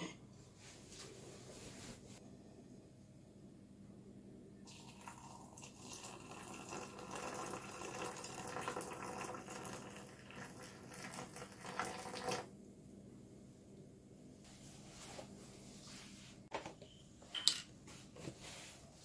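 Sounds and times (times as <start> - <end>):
water pouring into a mug: 4.7 - 12.5.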